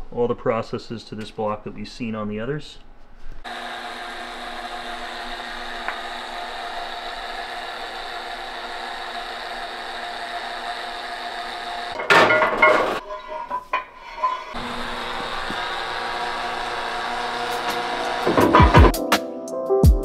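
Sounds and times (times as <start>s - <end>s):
machine shop hum: 3.4s - 18.9s
metal knocks: 12.0s - 14.6s.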